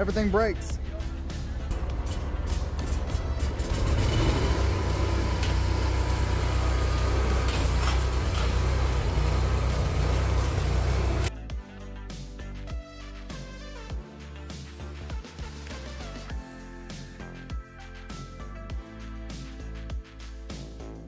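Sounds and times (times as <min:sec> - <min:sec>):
stump grinder engine rumbling: 0:01.8 - 0:11.3.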